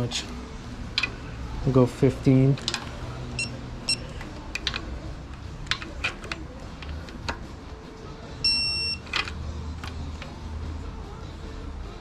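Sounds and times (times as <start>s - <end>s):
steady beep: 8.4s - 9.0s.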